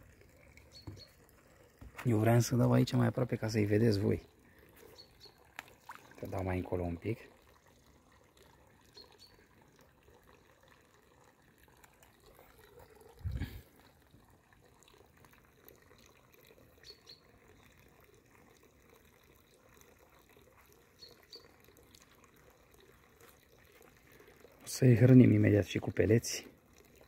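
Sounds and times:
water plops and drips: 0.0s - 27.0s.

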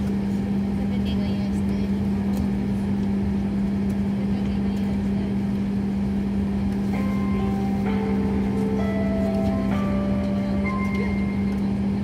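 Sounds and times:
airliner cabin hum: 0.0s - 12.0s
faint held music notes: 6.9s - 12.0s.

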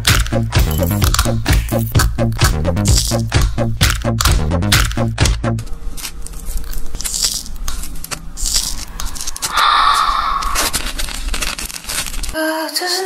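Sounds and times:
egg membrane wet tearing: 5.9s - 12.4s.

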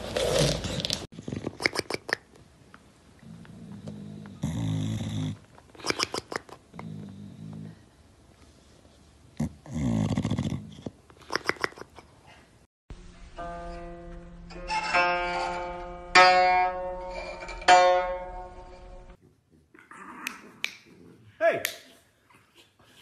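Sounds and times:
dog snoring: 3.2s - 5.4s, 9.4s - 10.9s
zither chords ringing: 13.2s - 19.2s.

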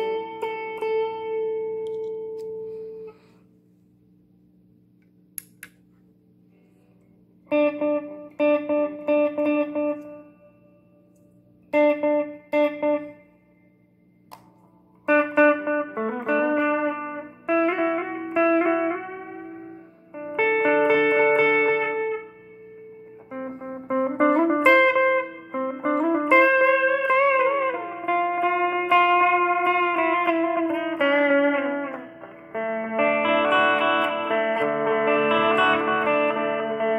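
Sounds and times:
electric guitar chords: 0.0s - 3.5s, 6.8s - 36.9s
faint amp hum: 0.0s - 36.9s
small clicks: 1.8s - 2.5s, 5.0s - 5.8s.

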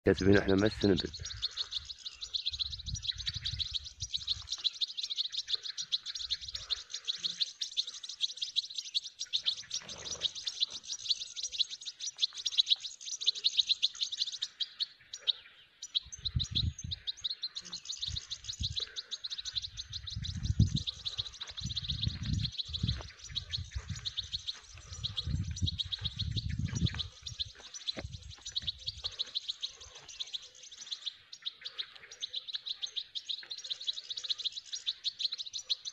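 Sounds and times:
goldfinch twittering song: 0.1s - 35.9s.

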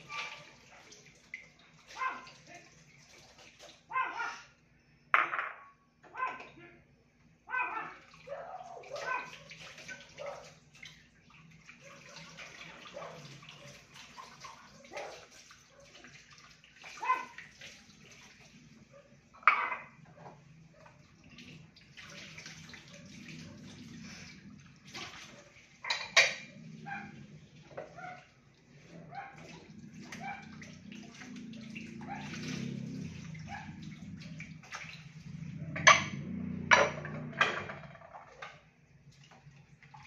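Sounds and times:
tap water splashing in sink: 8.0s - 18.7s, 19.4s - 28.3s, 29.1s - 40.0s
dishes clinking together: 19.4s - 19.9s, 25.9s - 26.5s, 35.8s - 37.9s.

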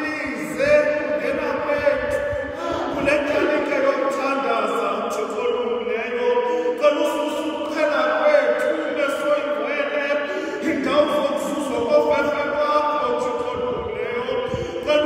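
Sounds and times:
voices singing a hymn: 0.0s - 4.3s.

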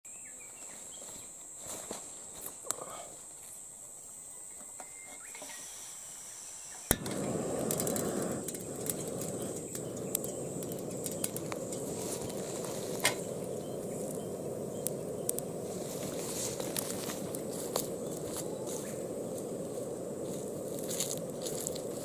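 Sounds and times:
high insect buzz: 5.1s - 22.0s
sharp click: 6.9s - 11.9s
rushing noise with crackles: 6.9s - 22.0s.

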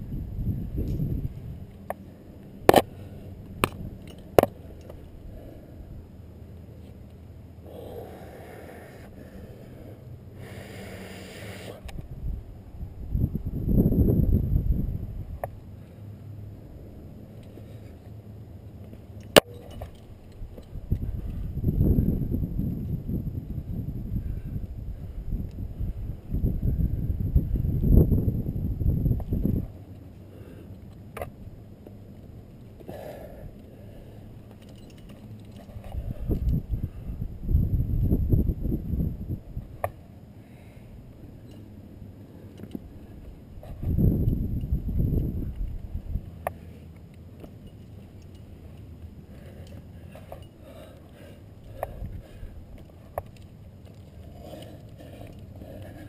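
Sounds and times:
rumbling and rubbing on microphone: 0.0s - 1.8s, 20.0s - 29.9s, 35.6s - 39.8s, 42.8s - 46.9s
climbing hardware clinking: 18.9s - 21.0s, 34.4s - 36.6s, 46.9s - 52.1s.

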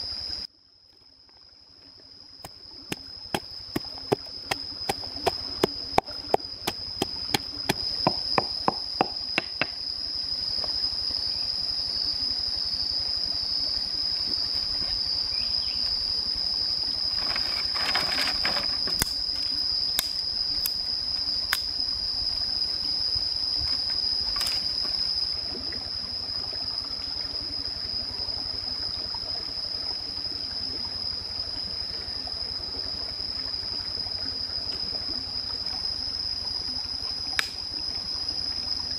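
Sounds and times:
high-pitched insect drone: 0.0s - 0.5s, 1.4s - 38.9s
pestle pounding in wooden mortar: 2.9s - 9.8s.

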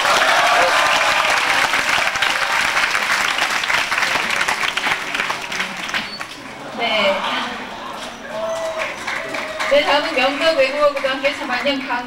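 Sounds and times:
audience applauding: 0.0s - 6.4s, 8.4s - 11.5s.

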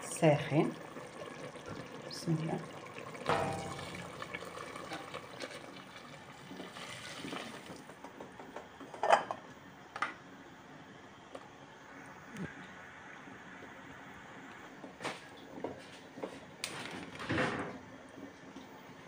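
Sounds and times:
water pouring into pot: 0.0s - 8.0s.

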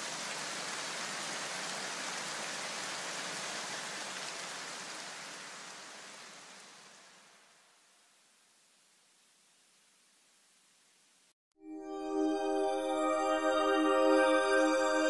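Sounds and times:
steady hiss: 0.0s - 11.4s.

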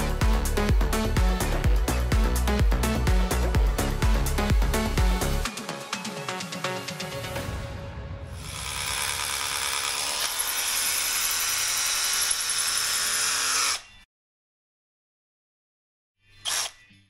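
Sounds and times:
hammer drill boring into brick: 8.4s - 14.0s, 16.4s - 16.8s.

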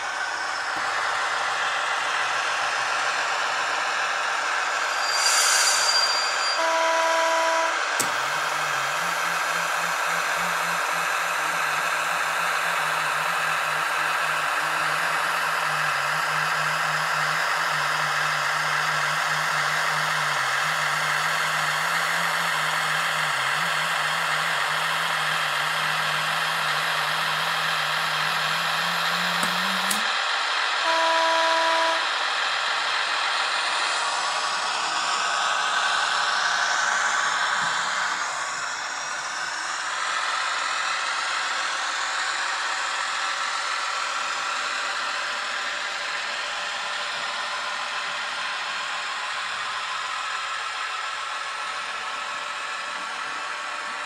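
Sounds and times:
locomotive horn toot: 6.4s - 9.2s, 30.8s - 32.1s
diesel engine running: 6.4s - 54.0s.

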